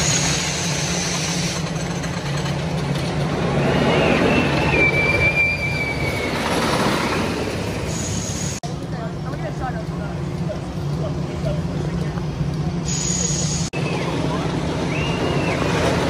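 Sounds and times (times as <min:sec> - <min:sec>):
high wheel squeal: 0:00.0 - 0:02.2, 0:03.5 - 0:06.9, 0:07.8 - 0:08.6, 0:12.8 - 0:16.0
roller coaster rumbling past: 0:00.0 - 0:12.9, 0:13.8 - 0:16.0.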